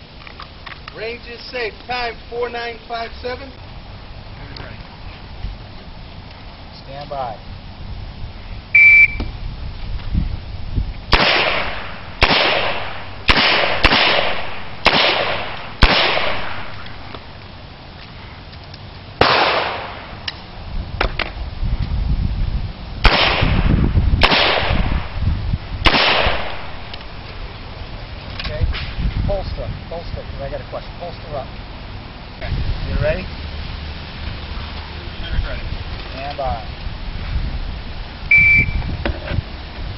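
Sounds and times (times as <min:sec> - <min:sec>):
handgun shots with echo: 0:11.2 - 0:16.9, 0:19.2 - 0:20.1, 0:23.1 - 0:25.1, 0:25.8 - 0:26.8.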